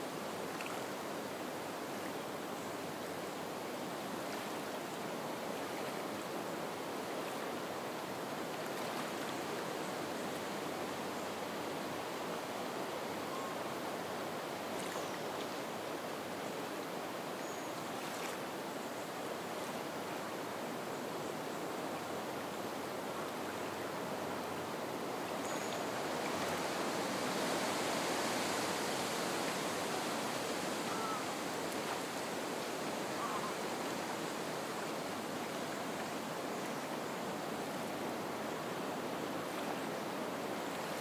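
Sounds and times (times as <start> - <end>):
water lapping at shore: 7.1 - 10.5, 17.8 - 18.6, 23.2 - 38.5, 39.3 - 41.0
wind through reeds: 22.4 - 41.0.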